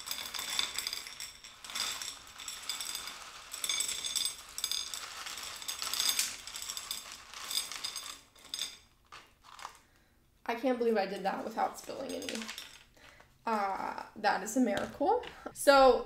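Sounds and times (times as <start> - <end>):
clay pebbles rattling: 0.0 - 9.9, 11.1 - 13.6.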